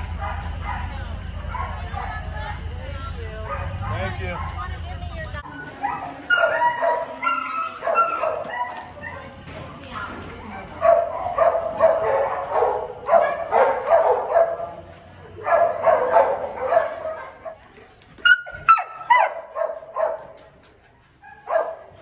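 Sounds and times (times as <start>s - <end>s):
dogs barking: 0.0s - 2.7s, 3.4s - 22.0s
high-pitched dog yelps: 5.4s - 9.3s, 15.2s - 20.2s.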